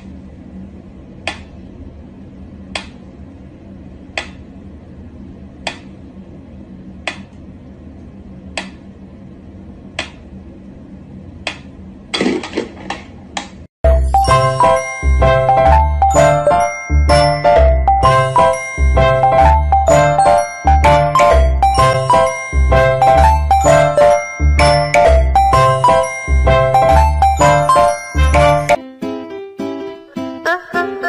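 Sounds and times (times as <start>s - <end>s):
faint steady hum: 0.0s - 28.8s
music: 13.8s - 31.0s.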